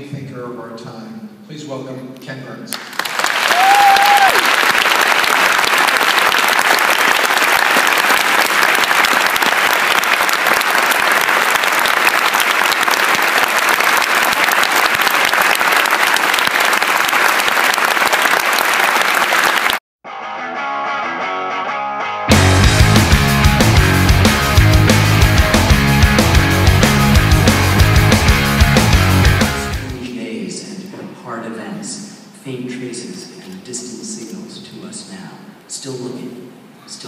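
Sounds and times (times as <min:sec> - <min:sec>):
large audience applauding: 0:02.7 - 0:19.8, 0:22.4 - 0:29.9
guitar music: 0:20.1 - 0:30.0.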